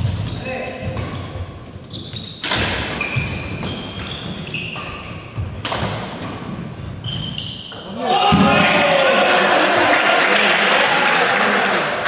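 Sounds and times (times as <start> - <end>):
court shoes squeaking: 0.0 - 8.0
racket hitting shuttlecock: 2.1 - 7.3.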